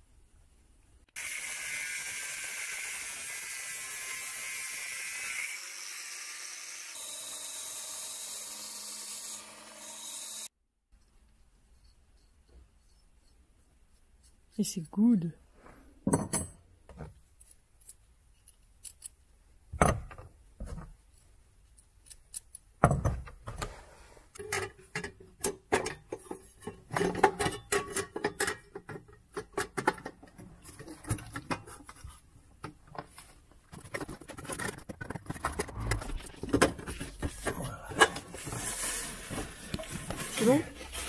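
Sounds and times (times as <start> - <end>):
small metallic clicks and scrapes: 17.1 - 19.3, 21.1 - 22.8, 24.3 - 38.2.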